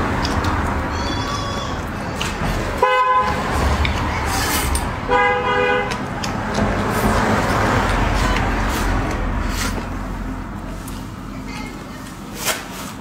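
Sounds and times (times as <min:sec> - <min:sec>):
slurping and chewing food: 0:00.0 - 0:04.8, 0:05.8 - 0:10.2
car horn honking: 0:02.8 - 0:03.4, 0:05.1 - 0:06.0.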